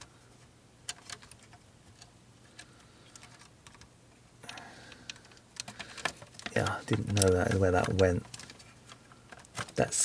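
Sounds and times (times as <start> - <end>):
steady low hum: 0.0 - 10.0
fingers tapping plastic parts: 4.5 - 9.9.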